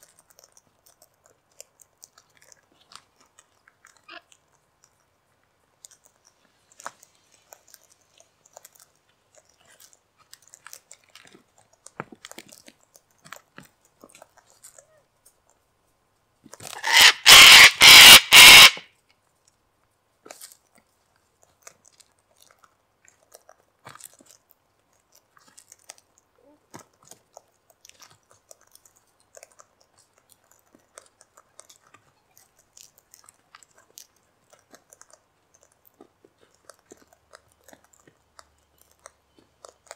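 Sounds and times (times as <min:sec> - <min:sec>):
cockatoo screeching: 0:16.7 - 0:18.8.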